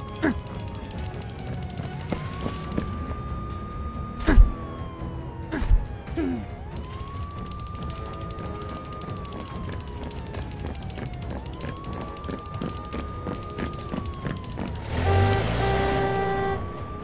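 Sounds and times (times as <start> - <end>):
fast even ticking: 0.0 - 3.0, 6.8 - 15.5
emergency siren wailing: 0.0 - 17.0.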